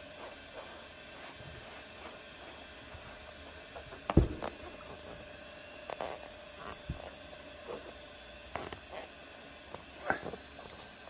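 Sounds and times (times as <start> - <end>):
low electrical hum: 0.0 - 11.0
dull thump: 4.1 - 4.7.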